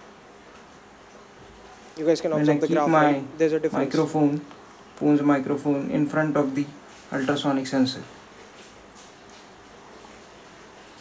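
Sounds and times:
faint room tone hiss: 0.0s - 11.0s.

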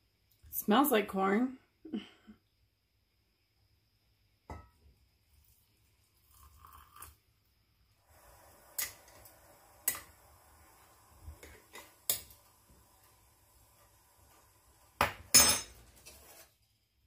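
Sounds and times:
water trickling into jar: 6.0s - 7.2s.

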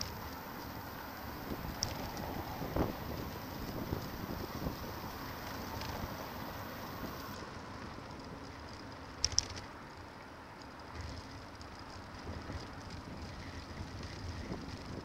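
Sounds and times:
wind on microphone: 0.0s - 7.3s
sharp clicks: 0.0s - 7.4s.

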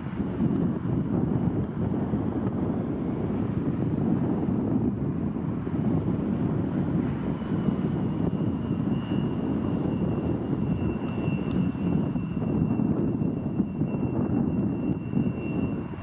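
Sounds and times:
aircraft engines rumbling: 0.0s - 16.0s.

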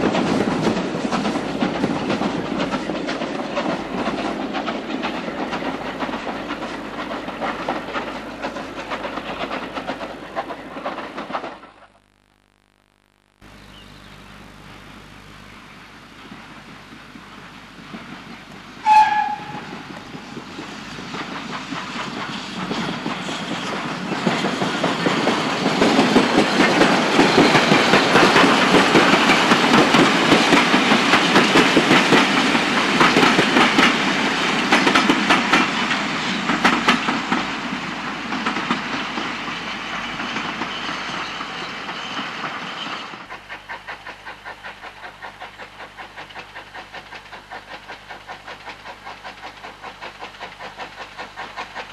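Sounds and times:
wheels clicking over rail joints: 0.0s - 11.8s, 17.3s - 51.9s
train passing rumble: 0.0s - 11.9s, 14.3s - 51.9s
steam locomotive whistle: 18.8s - 19.9s.

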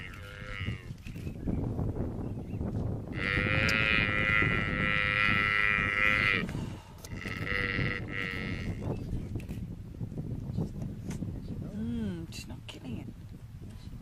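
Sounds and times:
buffalo calf bleating in distress: 0.0s - 1.0s, 3.1s - 6.5s, 7.1s - 8.8s.

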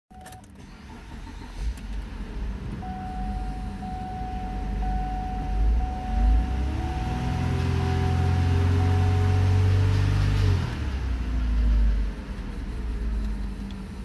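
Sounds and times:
car engine starting and idling: 0.1s - 14.0s
car warning chime: 2.8s - 9.8s.

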